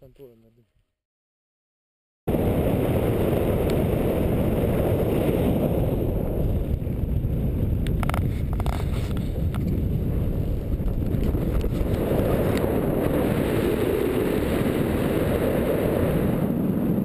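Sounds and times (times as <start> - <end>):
wind buffeting microphone: 2.3 - 17.0.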